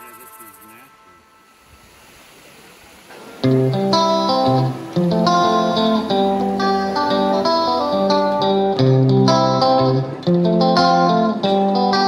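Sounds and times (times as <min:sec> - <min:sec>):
plucked guitar music: 0:03.1 - 0:12.0.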